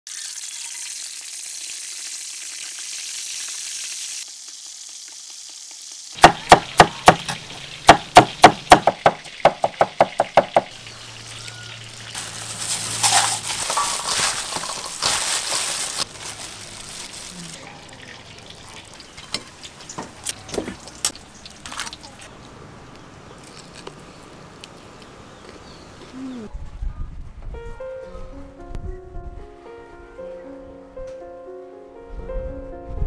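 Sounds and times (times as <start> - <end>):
oil sizzling in wok: 0.1 - 17.2, 17.8 - 22.1
cleaver chopping on wooden board: 6.2 - 10.7
vegetables tossed in metal bowl: 12.2 - 17.2.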